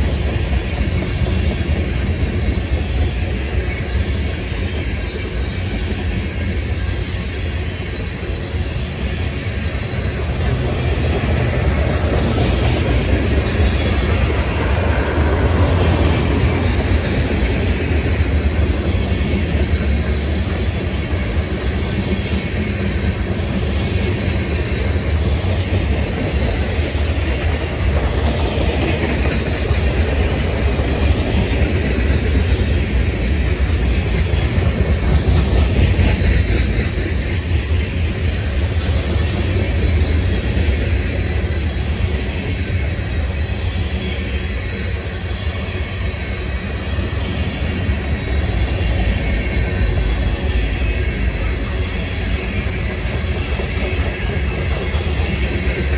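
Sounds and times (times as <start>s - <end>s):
freight train wheels rumbling: 0.0s - 55.9s
wheel clickety-clack: 0.0s - 55.9s.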